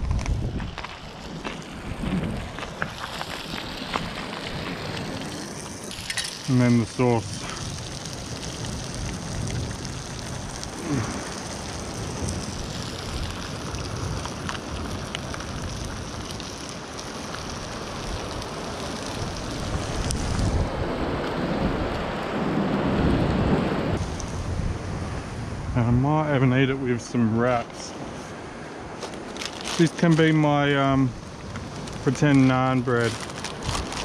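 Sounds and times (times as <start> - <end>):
wind: 0.0 - 34.0
food sizzling in a frying pan: 2.7 - 20.4.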